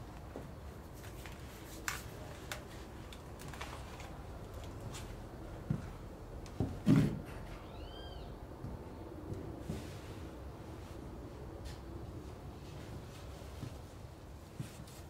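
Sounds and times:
objects and paper being handled: 0.8s - 5.1s
cat meowing: 7.6s - 8.3s.

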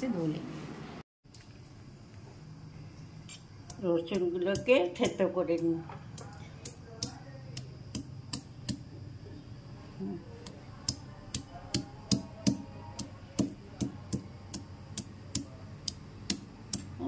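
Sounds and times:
garlic being crushed with sharp knocks: 3.6s - 9.2s, 10.4s - 17.0s.

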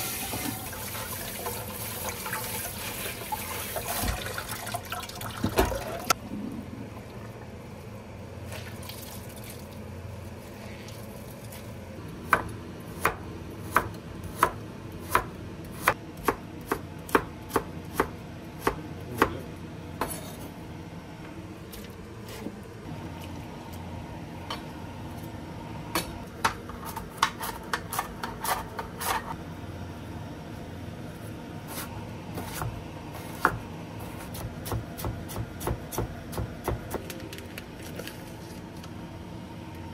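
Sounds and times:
knife chopping on wooden board: 32.4s - 37.0s.

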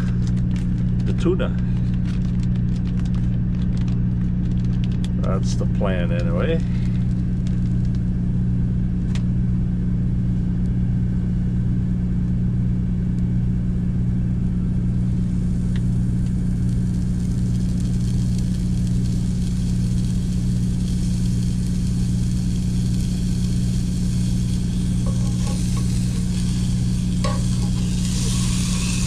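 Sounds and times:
bacon sizzling in skillet: 15.1s - 29.0s.

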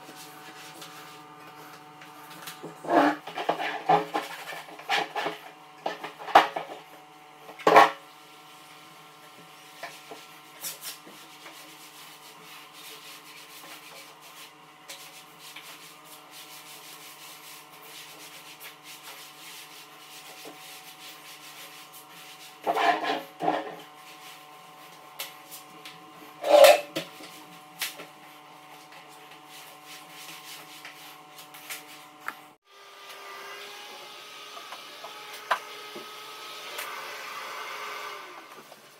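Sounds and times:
scrubbing and wiping toilet: 0.0s - 7.0s, 9.4s - 32.2s.

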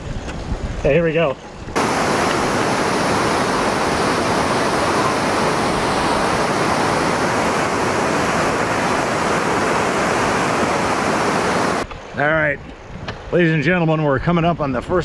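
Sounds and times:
whitewater rapids rushing: 1.8s - 11.8s.

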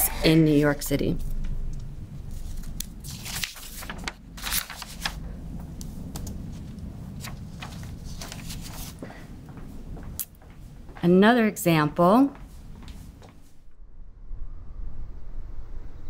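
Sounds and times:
low room hum: 0.0s - 16.0s
paper crinkling: 2.3s - 5.2s, 6.1s - 9.2s.

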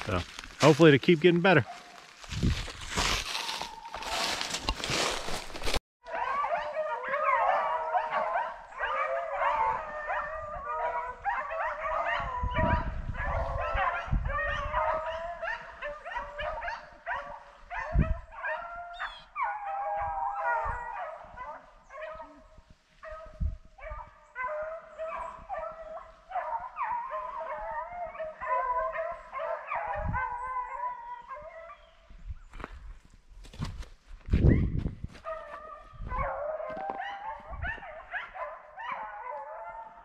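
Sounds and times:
hounds baying: 6.0s - 32.2s, 34.5s - 40.0s.

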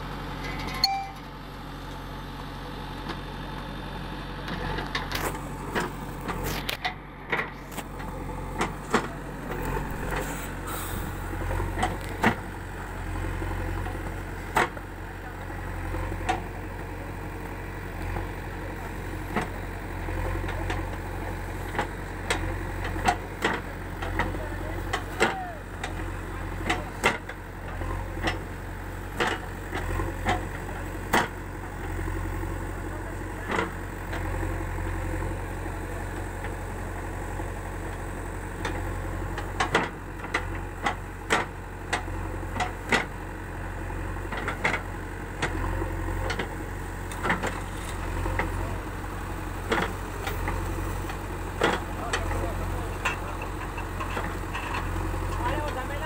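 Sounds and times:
diesel engine humming: 0.0s - 56.0s
digger arm knocks and clanks: 4.4s - 12.7s, 13.7s - 16.7s, 18.1s - 31.9s, 33.1s - 35.0s, 37.9s - 43.3s, 44.1s - 56.0s.

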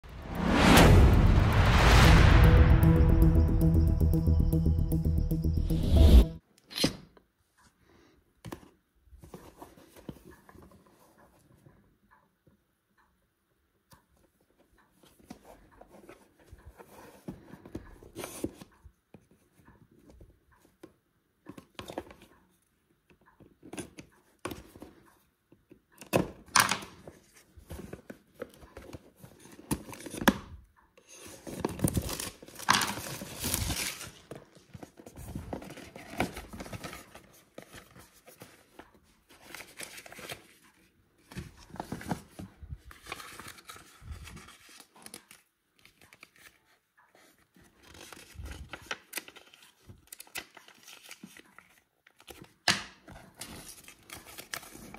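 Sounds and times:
cardboard and paper handling: 31.0s - 54.9s
plastic wrap crinkling and tearing: 31.7s - 34.3s.

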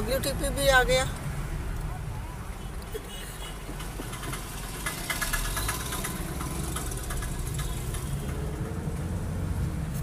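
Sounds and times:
car engine and road noise: 0.0s - 10.0s
high rattling clatter: 3.7s - 8.5s.

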